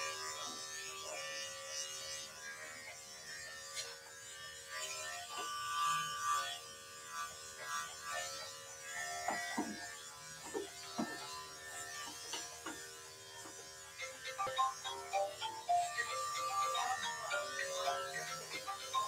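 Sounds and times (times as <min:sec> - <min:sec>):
electric clippers humming: 0:00.0 - 0:19.0.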